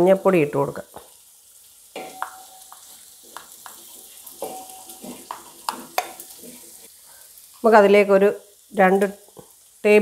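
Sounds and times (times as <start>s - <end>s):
onions sizzling in oil: 0.0s - 10.0s
spatula scraping metal pot: 3.2s - 6.9s.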